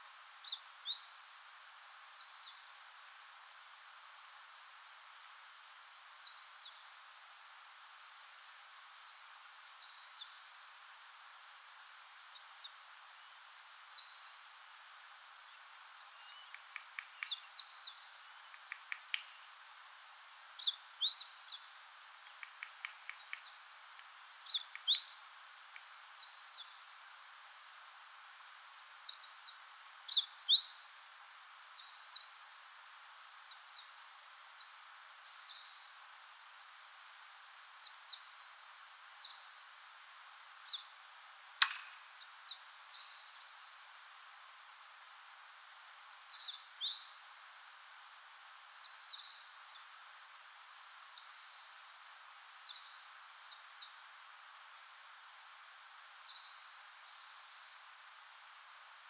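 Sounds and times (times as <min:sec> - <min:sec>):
faint high hiss: 0:00.0 - 0:59.0
birds chirping and twittering: 0:20.6 - 0:30.8
sharp click: 0:41.6 - 0:42.0.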